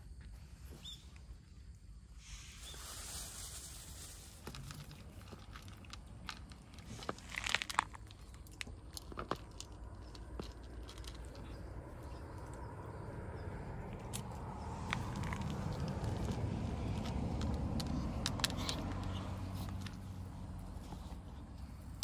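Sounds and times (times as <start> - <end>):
cat crunching dry kibble: 3.9 - 12.6, 13.9 - 22.0.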